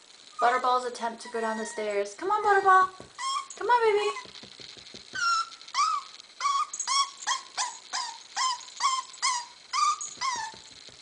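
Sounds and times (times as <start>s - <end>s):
puppy whimpering: 0.3s - 2.1s, 3.2s - 4.5s, 5.1s - 10.8s.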